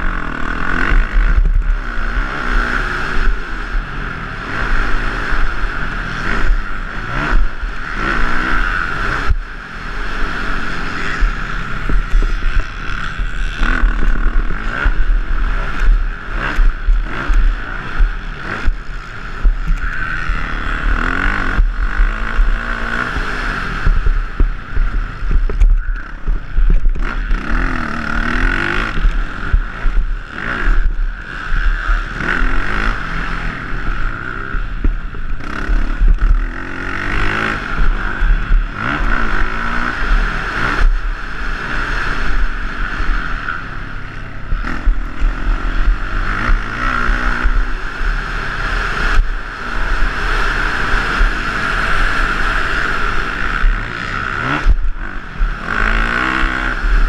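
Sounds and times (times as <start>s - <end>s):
dirt bike engine revving: 0.0s - 57.0s
wind rumble on microphone: 0.0s - 57.0s.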